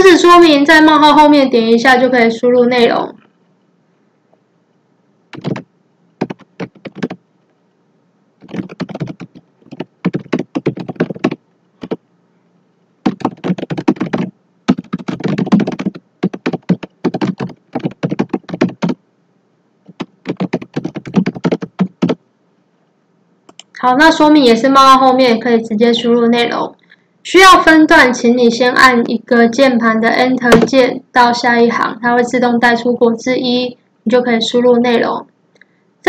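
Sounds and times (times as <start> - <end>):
keyboard typing: 5.3 - 7.2, 8.4 - 12.0, 13.0 - 19.0, 19.9 - 22.2.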